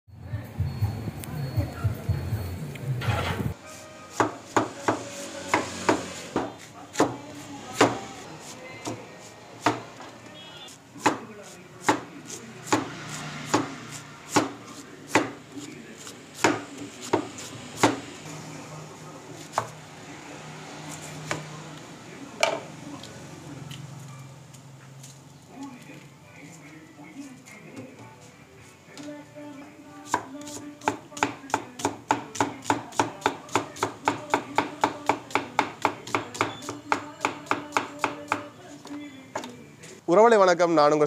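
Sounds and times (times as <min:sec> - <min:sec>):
knife chopping on wooden board: 0:04.1 - 0:08.2, 0:09.6 - 0:09.8, 0:11.0 - 0:15.4, 0:16.0 - 0:18.0, 0:30.1 - 0:38.5.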